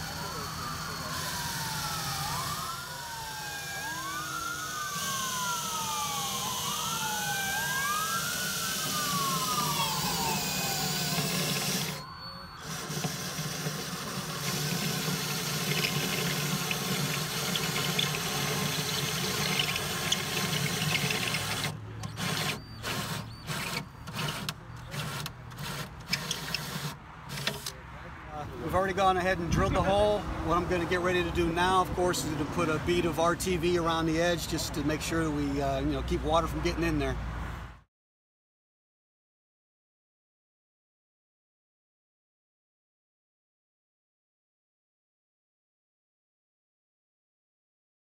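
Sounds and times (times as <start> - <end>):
siren wailing: 0.0 - 24.2
drill cutting through metal: 0.0 - 27.5.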